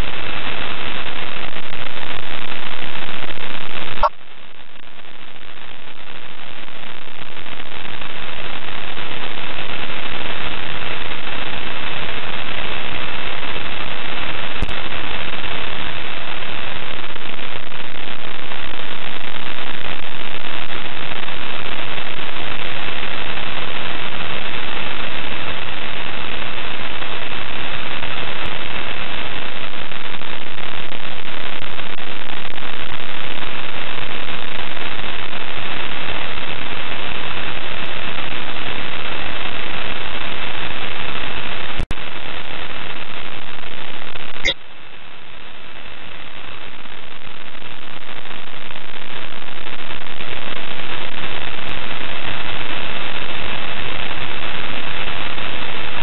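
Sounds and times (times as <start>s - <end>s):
radio static hiss: 0.0s - 56.0s.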